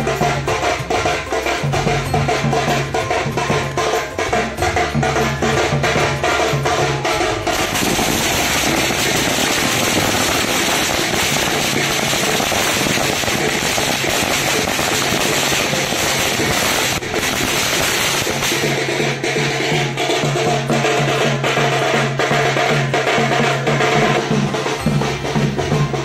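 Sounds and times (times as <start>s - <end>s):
drumming: 0.0s - 26.0s
firecrackers crackling: 6.6s - 26.0s.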